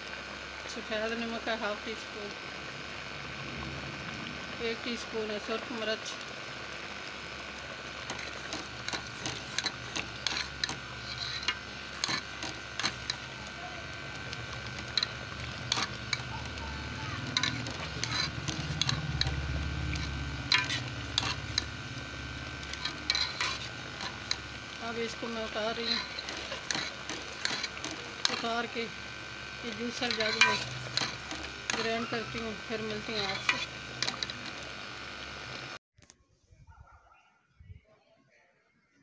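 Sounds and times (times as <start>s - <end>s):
tomatoes boiling in pot: 0.0s - 35.8s
spoon scraping metal pot: 8.0s - 28.9s, 29.6s - 34.6s.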